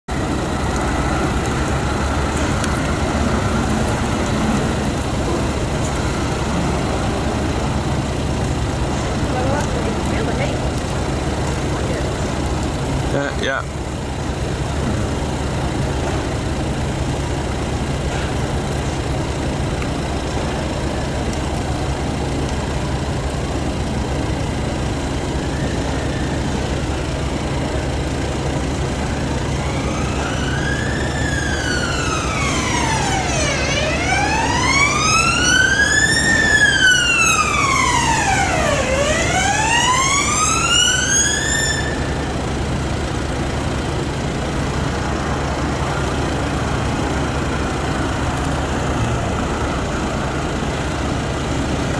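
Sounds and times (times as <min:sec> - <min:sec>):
emergency siren wailing: 0:00.1 - 0:13.0, 0:24.4 - 0:43.2
low engine hum: 0:00.1 - 0:51.9.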